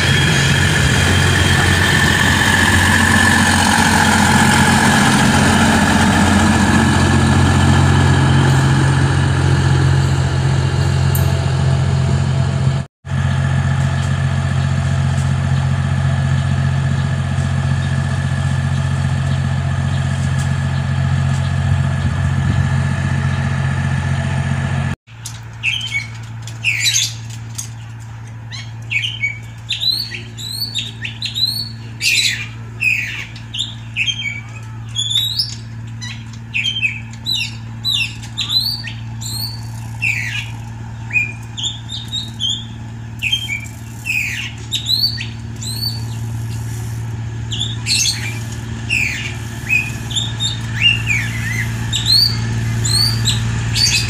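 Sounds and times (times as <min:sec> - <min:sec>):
diesel train engines idling: 0:00.0 - 0:54.0
diesel train passing: 0:00.0 - 0:54.0
birds chirping: 0:25.5 - 0:54.0.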